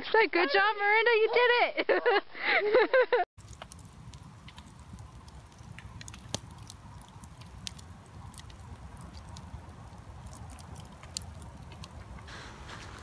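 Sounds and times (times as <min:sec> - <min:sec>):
campfire crackling and popping: 0:03.4 - 0:13.0
low steady rumble: 0:03.4 - 0:13.0.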